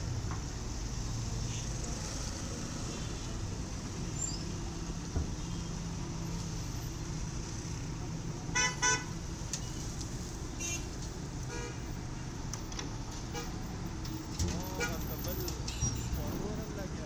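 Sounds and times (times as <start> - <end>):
street traffic: 0.0 - 17.0
vehicle horn honking: 8.5 - 9.1.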